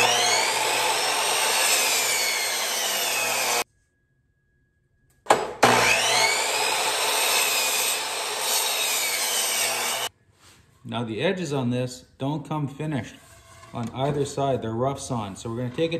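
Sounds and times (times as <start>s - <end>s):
miter saw cutting wood: 0.0s - 3.6s, 5.3s - 10.1s.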